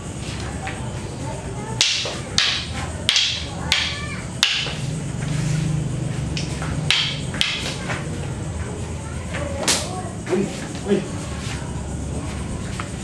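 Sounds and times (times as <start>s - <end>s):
sticks clacking: 1.8s - 5.3s, 6.3s - 8.4s, 9.3s - 11.0s.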